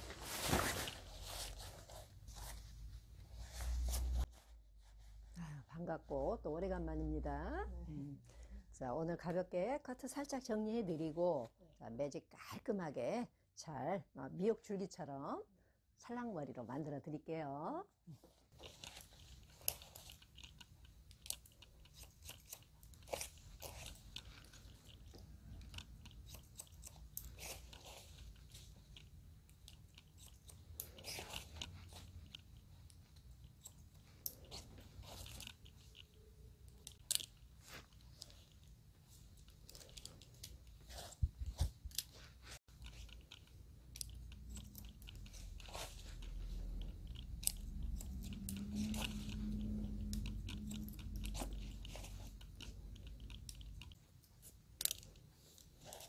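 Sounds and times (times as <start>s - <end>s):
scissors snipping hair: 18.9s - 38.6s, 42.7s - 56.0s.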